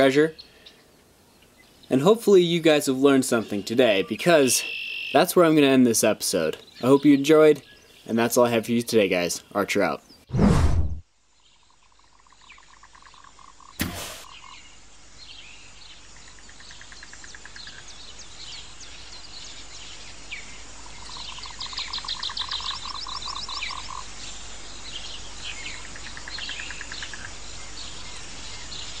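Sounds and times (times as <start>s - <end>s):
birds chirping: 0.0s - 10.3s, 11.3s - 29.0s
frogs trilling: 3.4s - 5.7s, 11.6s - 14.8s, 15.9s - 24.3s, 25.4s - 28.2s
sharp click: 13.8s - 14.3s.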